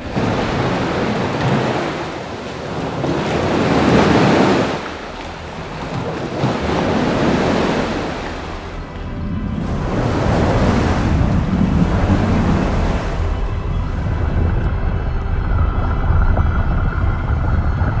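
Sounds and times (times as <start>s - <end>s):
water churning and rushing: 0.0s - 18.0s.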